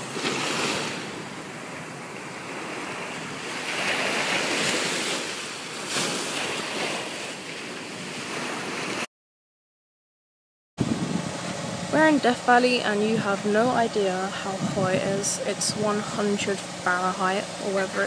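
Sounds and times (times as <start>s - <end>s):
waves breaking on beach: 0.0s - 9.1s, 10.8s - 18.0s.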